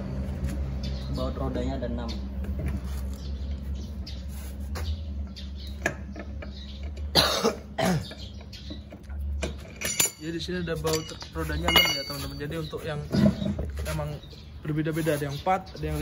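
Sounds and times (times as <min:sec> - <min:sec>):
person coughing: 0:07.1 - 0:08.2.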